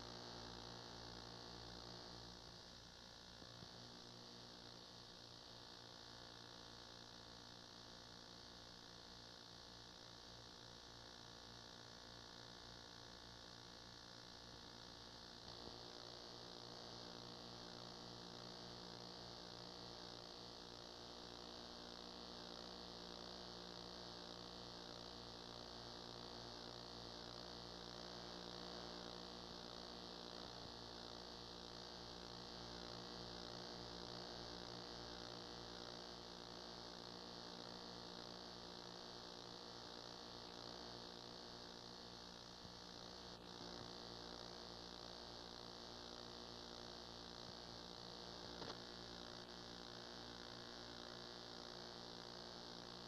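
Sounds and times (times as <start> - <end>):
electrical mains hum: 0.0 - 53.0
tape hiss: 47.4 - 50.0.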